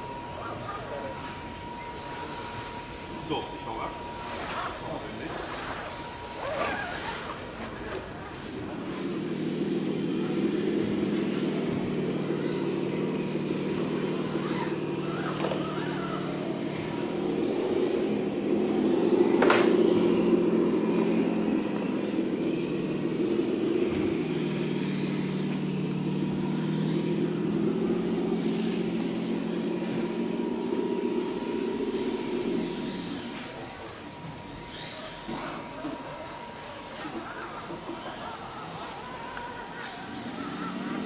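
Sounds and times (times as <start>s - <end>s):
rc truck motors and gears whirring: 0.0s - 41.0s.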